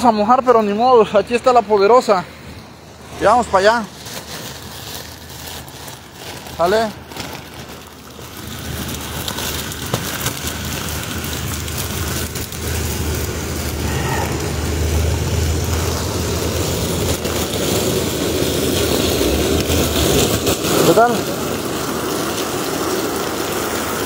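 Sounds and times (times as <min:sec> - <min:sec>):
heavy rain hissing: 0:07.9 - 0:24.0
low rumble: 0:12.4 - 0:18.3.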